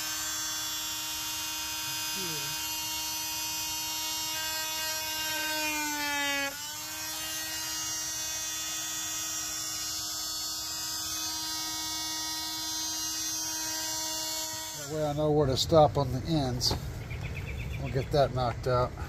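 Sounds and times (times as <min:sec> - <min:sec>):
cutting wheel on plastic: 0:00.0 - 0:15.3
rotary tool whining: 0:00.0 - 0:15.3.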